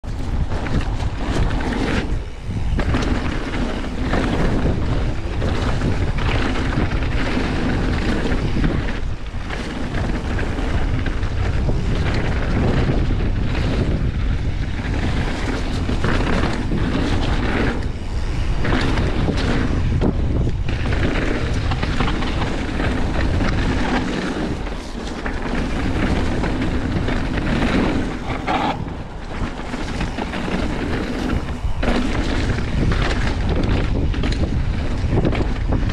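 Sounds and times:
bike knocking and rattling: 0:00.0 - 0:35.9
bike tyre noise: 0:00.0 - 0:35.9
wind over microphone: 0:00.0 - 0:35.9.

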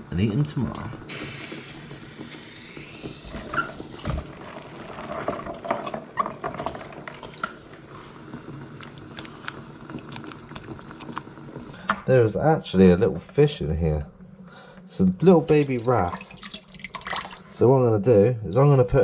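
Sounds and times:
water boiling in pan: 0:00.0 - 0:13.4, 0:15.2 - 0:17.7.

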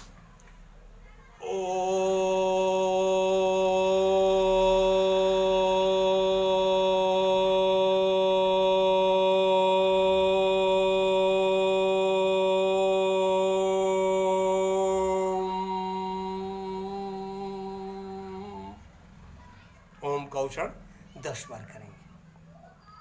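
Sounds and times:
man humming: 0:01.4 - 0:18.8
man chanting om: 0:01.4 - 0:18.9.

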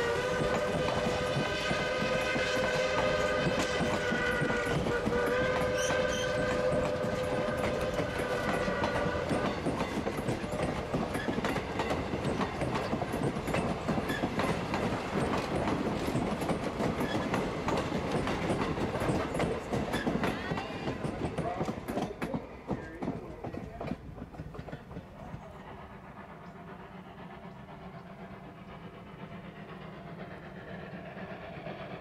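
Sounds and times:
steam whistle blowing: 0:00.0 - 0:09.7
train wheels clicking over rail joints: 0:00.0 - 0:32.0.

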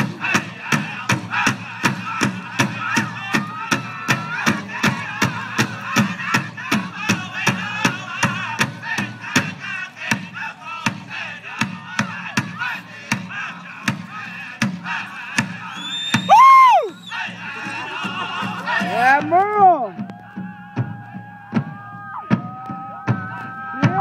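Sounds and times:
high-pitched group singing: 0:00.0 - 0:19.2
large drum beating: 0:16.3 - 0:24.0.

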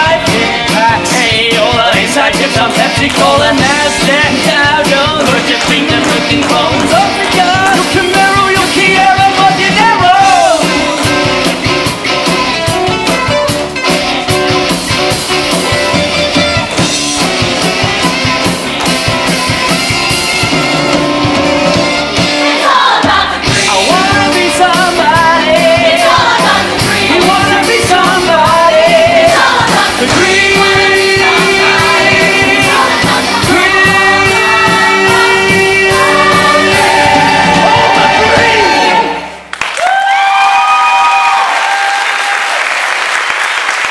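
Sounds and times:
rock band playing: 0:00.0 - 0:39.4
cast singing: 0:22.5 - 0:39.4.

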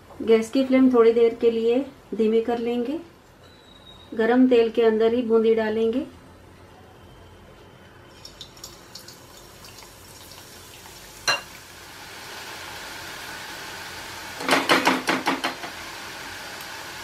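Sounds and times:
batter sizzling in hot oil: 0:08.1 - 0:17.0.

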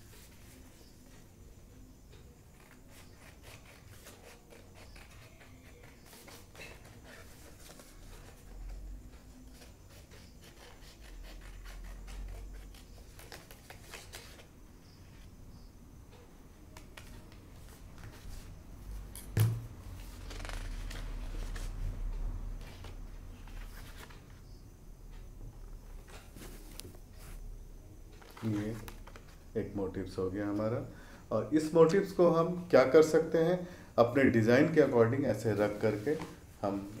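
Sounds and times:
scissors snipping paper: 0:02.6 - 0:08.8.

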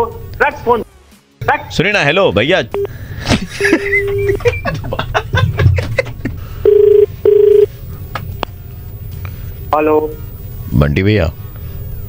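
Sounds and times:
steady beep: 0:01.4 - 0:01.8, 0:06.3 - 0:12.0
telephone ringback tone: 0:06.4 - 0:08.1.

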